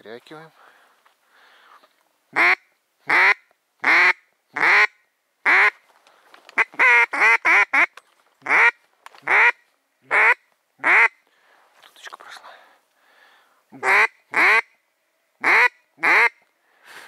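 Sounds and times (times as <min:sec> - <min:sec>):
duck call quacks: 0:02.3 - 0:05.8, 0:06.6 - 0:07.9, 0:08.5 - 0:11.1, 0:13.8 - 0:14.7, 0:15.4 - 0:16.4.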